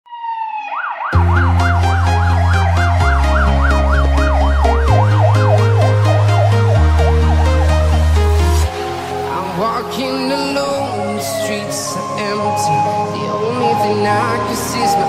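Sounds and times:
fire engine electronic siren: 0.0 - 15.0
electronic music with deep bass: 1.1 - 15.0.

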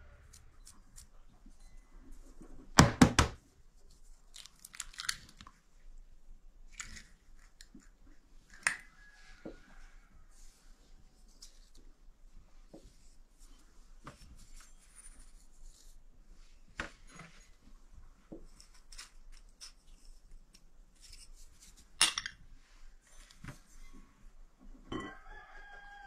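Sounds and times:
spoon and cups clinking on glass bowl: 24.9 - 25.2.

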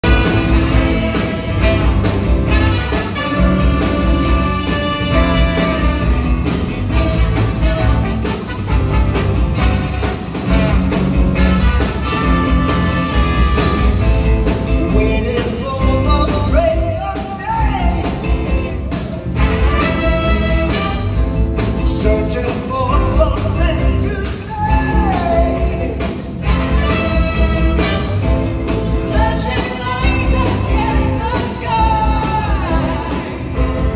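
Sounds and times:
horn section: 0.0 - 14.3, 19.3 - 22.1, 26.4 - 33.9
drums: 0.0 - 33.9
electric guitar: 0.0 - 33.9
person singing: 29.0 - 33.9.

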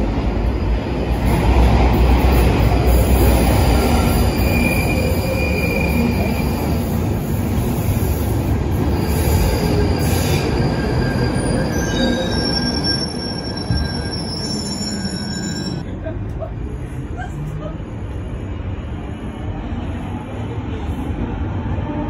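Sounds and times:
underground train rumbling: 0.0 - 22.0
wheels and brakes squealing: 3.2 - 7.0, 8.8 - 15.8.

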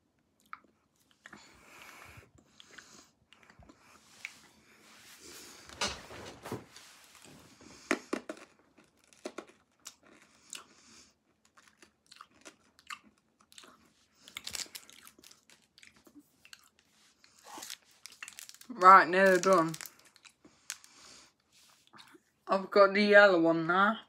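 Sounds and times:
hard candy crunching: 7.9 - 21.4.

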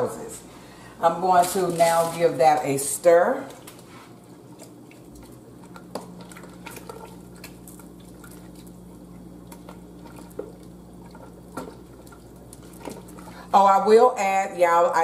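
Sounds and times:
spoon stirring liquid: 3.5 - 13.4.

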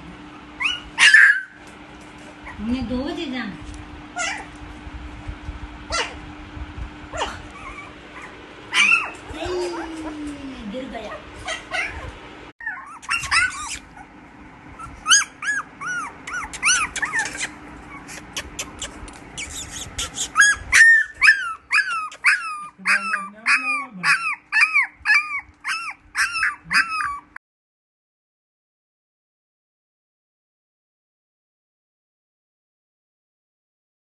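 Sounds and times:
puppies whimpering and yipping: 0.6 - 1.6, 2.3 - 2.7, 4.2 - 4.6, 5.9 - 6.2, 7.1 - 10.3, 11.0 - 27.4.

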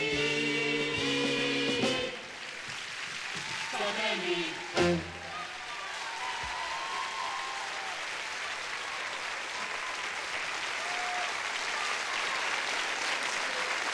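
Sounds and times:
audience applauding: 0.9 - 13.9.

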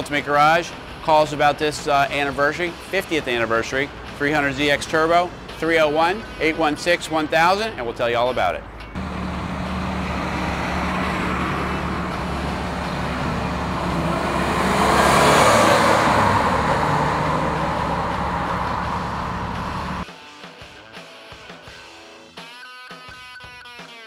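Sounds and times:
road traffic: 0.0 - 20.1
car driving past close by: 9.0 - 20.0.

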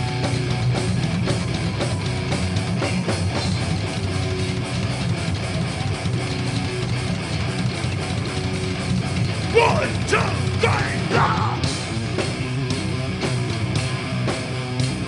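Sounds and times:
heavy metal band playing: 0.0 - 15.0
shouted vocal: 9.5 - 11.7.

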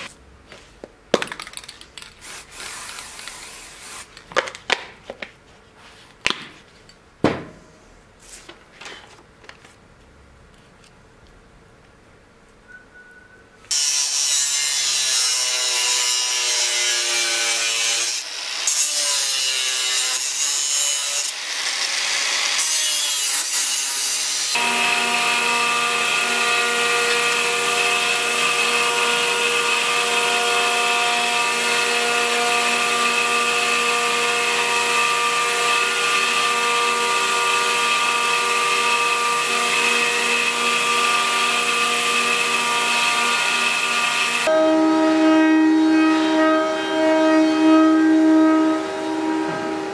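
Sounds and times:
angle grinder cutting steel: 13.7 - 44.8.

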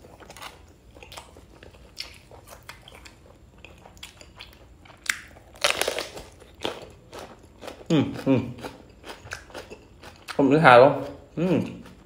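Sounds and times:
crunch of bell pepper bitten: 4.9 - 8.3.

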